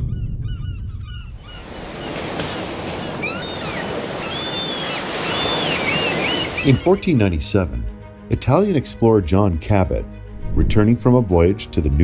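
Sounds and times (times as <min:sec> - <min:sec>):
birds calling: 0:00.1 - 0:07.4
ocean surf washing in: 0:01.6 - 0:07.0.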